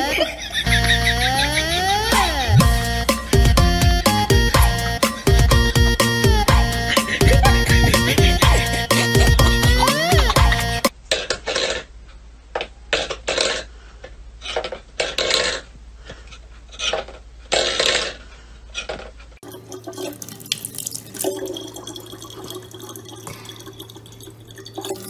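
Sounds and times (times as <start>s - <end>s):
water trickling into plastic bottle: 19.4s - 25.0s.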